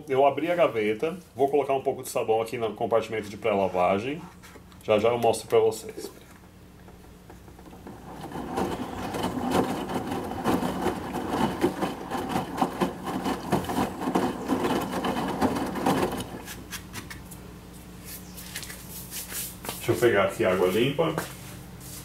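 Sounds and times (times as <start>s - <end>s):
steady low hum: 0.0s - 22.0s
washing machine drum turning: 6.8s - 16.5s
wet laundry sloshing: 7.8s - 16.5s.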